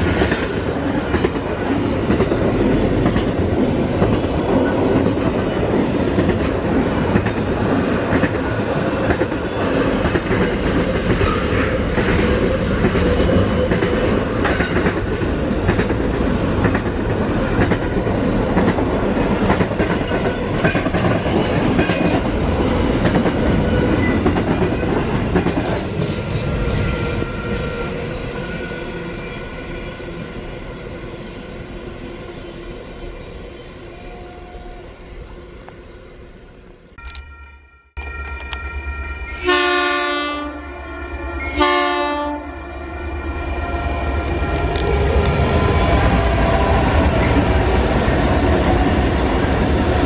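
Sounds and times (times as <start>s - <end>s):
freight train wheels clattering: 0.0s - 28.1s.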